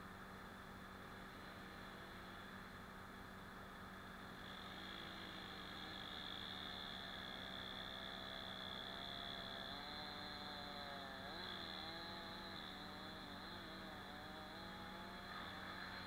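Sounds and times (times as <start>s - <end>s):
steady hum and hiss: 0.0s - 16.0s
distant small engine running: 3.9s - 16.0s.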